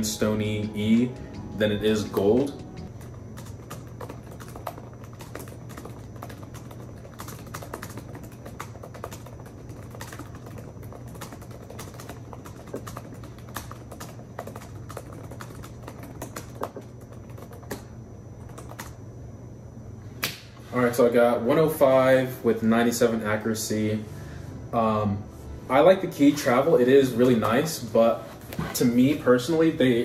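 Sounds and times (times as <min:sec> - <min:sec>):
fast typing on laptop keyboard: 0:00.3 - 0:19.0.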